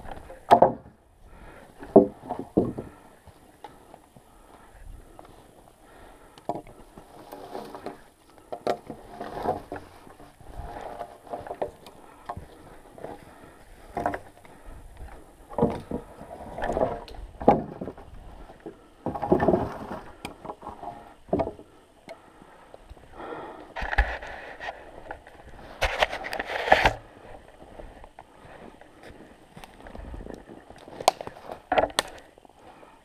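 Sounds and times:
wooden logs knocking: 0:00.0 - 0:03.8, 0:05.9 - 0:22.3, 0:30.2 - 0:32.2.

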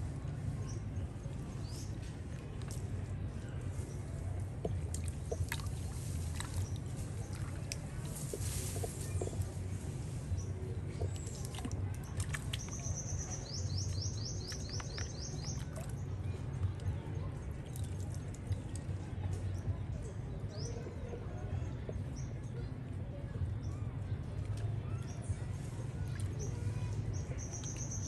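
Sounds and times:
low steady rumble: 0:00.0 - 0:28.0
water splashing in a bucket: 0:04.5 - 0:09.8, 0:10.8 - 0:16.8, 0:17.5 - 0:18.9.

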